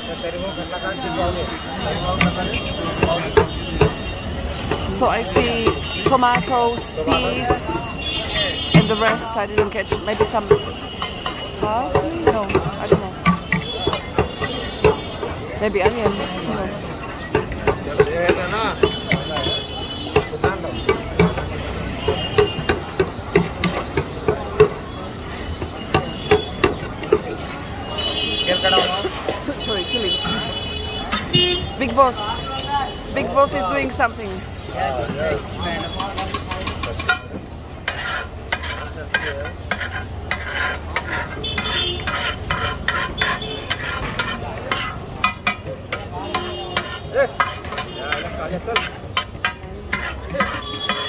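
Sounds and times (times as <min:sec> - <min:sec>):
metal masher knocking on griddle: 0:02.0 - 0:08.0, 0:08.6 - 0:27.6, 0:35.1 - 0:51.0
metal spatula scraping griddle: 0:37.8 - 0:51.0.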